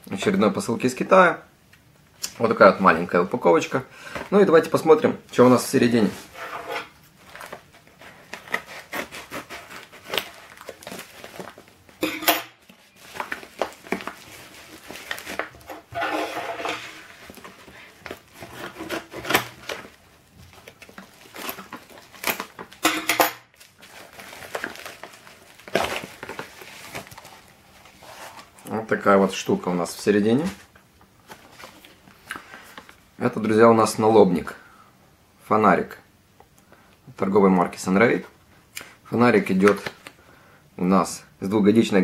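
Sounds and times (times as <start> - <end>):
envelope rustling and crinkling: 7.0 - 12.0, 12.6 - 22.8, 23.5 - 29.4, 30.4 - 33.0.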